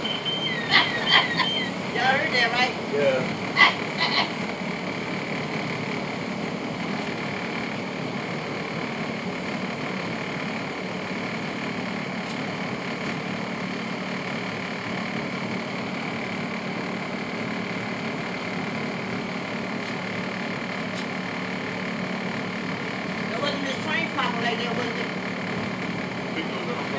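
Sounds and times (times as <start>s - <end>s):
low hum and high whine: 0.0s - 26.9s.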